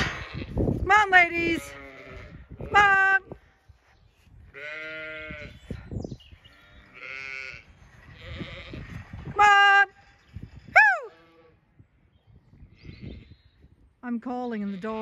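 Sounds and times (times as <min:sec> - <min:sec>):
sheep bleating: 0:01.4 - 0:03.0, 0:04.6 - 0:05.6, 0:06.5 - 0:08.8.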